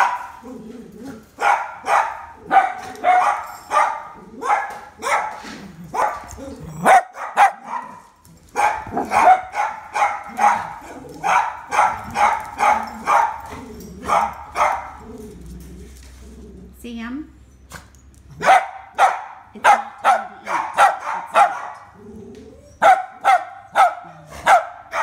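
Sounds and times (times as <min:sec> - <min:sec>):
dog barking: 0:00.0 - 0:00.4, 0:01.4 - 0:15.0, 0:18.4 - 0:21.9, 0:22.8 - 0:25.0.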